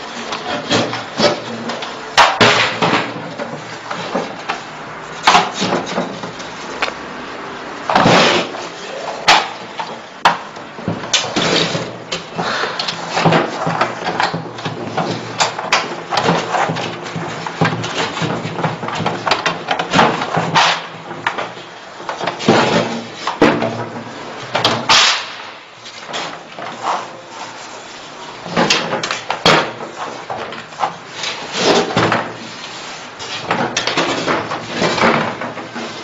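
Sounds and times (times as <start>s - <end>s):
hard parts knocking and scraping: 0.0s - 7.0s, 7.9s - 25.0s.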